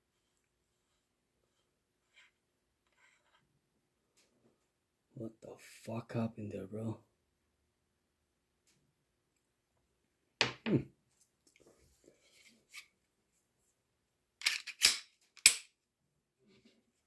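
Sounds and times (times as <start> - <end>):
pistol slide clacking: 14.4 - 15.7.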